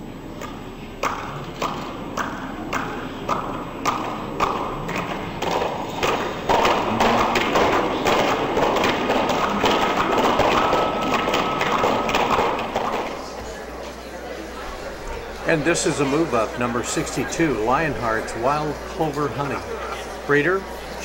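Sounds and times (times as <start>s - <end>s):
spectators clapping: 1.0s - 13.4s.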